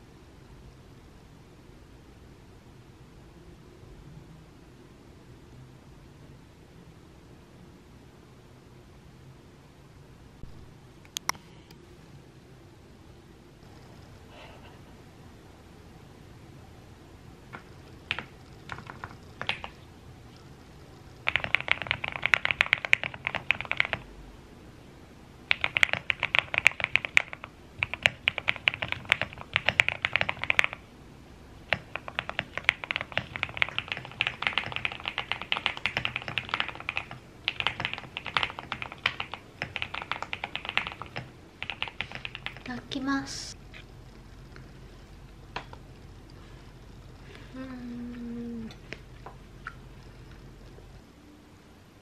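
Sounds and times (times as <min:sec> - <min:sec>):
mechanical keyboard typing: 0:17.5 - 0:19.8, 0:21.2 - 0:24.1, 0:25.5 - 0:30.8, 0:31.7 - 0:42.7.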